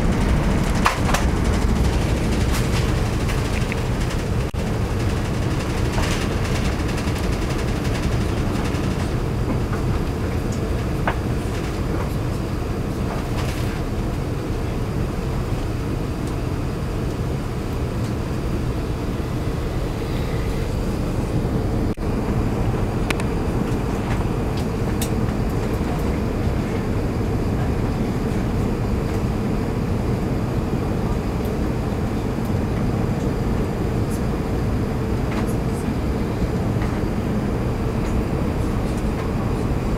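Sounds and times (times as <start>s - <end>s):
airplane cabin roar: 0.0s - 39.9s.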